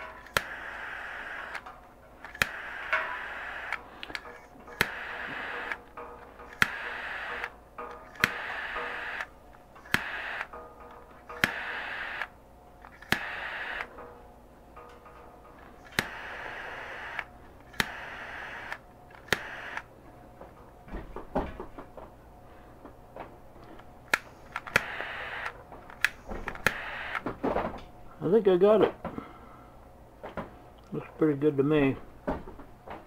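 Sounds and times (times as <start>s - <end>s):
heating tool hiss: 0.3s - 1.6s, 2.4s - 3.9s, 4.7s - 5.8s, 6.5s - 7.5s, 8.2s - 9.3s, 9.9s - 10.5s, 11.4s - 12.3s, 13.0s - 13.9s, 15.9s - 19.8s
heating tool click: 8.1s - 9.3s, 11.3s - 12.3s, 19.2s - 19.8s.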